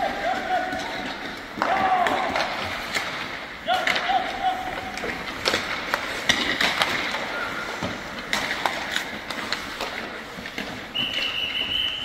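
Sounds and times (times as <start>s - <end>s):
hockey sticks clacking on pucks: 0.0s - 12.0s
skates scraping on ice: 0.0s - 12.0s.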